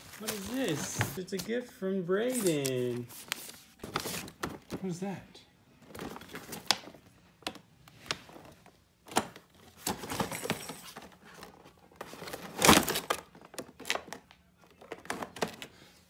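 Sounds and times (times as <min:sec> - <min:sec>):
packaging crinkling and rustling: 0:00.0 - 0:04.8.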